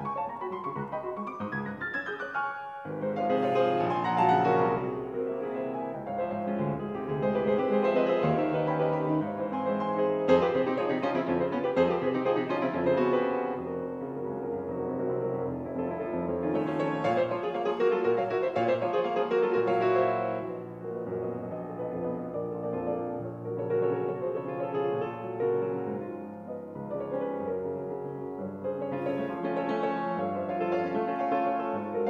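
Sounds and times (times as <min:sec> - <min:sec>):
solo piano piece: 0:00.0 - 0:32.0.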